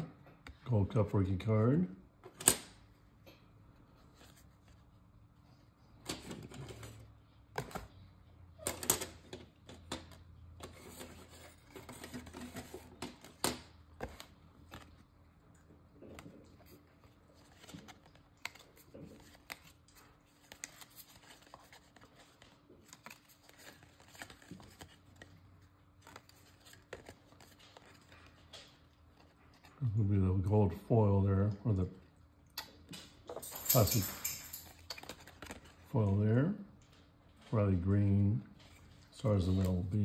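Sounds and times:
trading cards being flipped: 0:16.0 - 0:29.7, 0:34.5 - 0:35.8.

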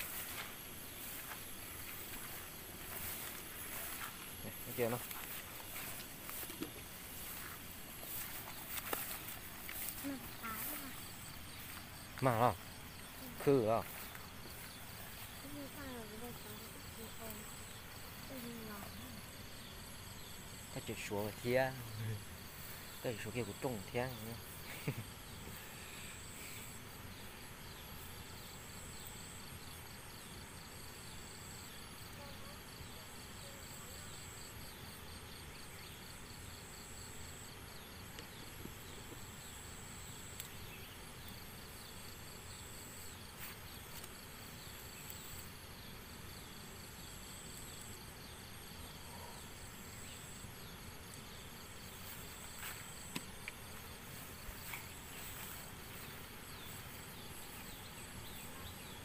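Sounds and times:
insects trilling: 0:00.0 - 0:59.0
rhythmic ticking insect chorus: 0:00.0 - 0:59.0.

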